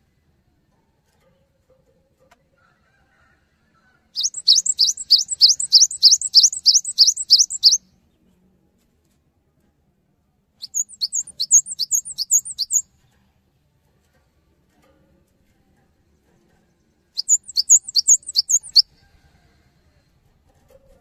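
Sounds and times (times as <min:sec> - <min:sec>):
bird singing rapid high notes: 0:04.2 - 0:07.8, 0:10.6 - 0:12.8, 0:17.2 - 0:18.9.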